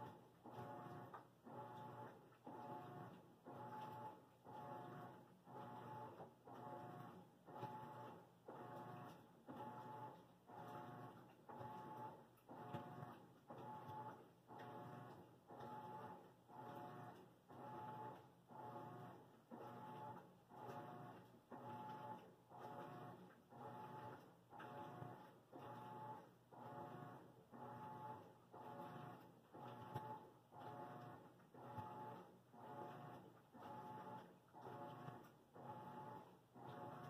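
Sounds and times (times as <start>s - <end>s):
laundry machine running: 0.0s - 37.0s.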